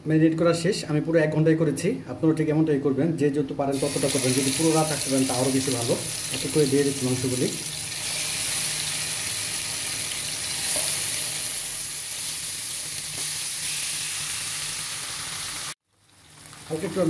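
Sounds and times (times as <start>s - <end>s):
chicken sizzling in hot oil: 3.7s - 17.0s.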